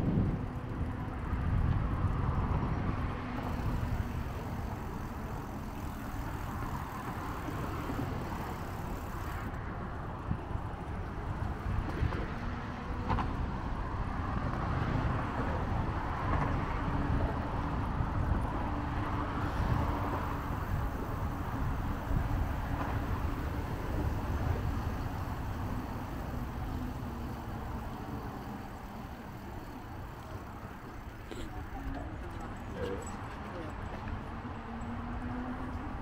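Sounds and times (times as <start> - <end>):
wind buffeting microphone: 0.0 - 32.8.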